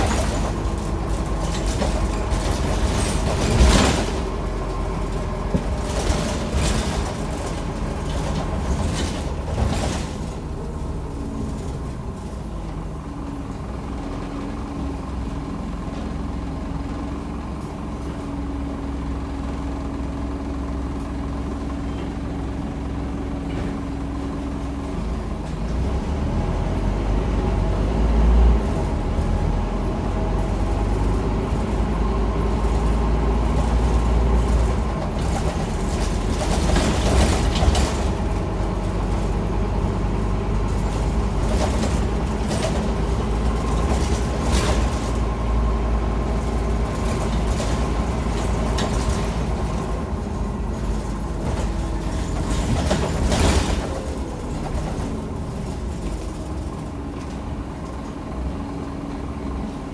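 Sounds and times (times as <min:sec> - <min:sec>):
bus engine low rumble: 0:00.0 - 0:59.9.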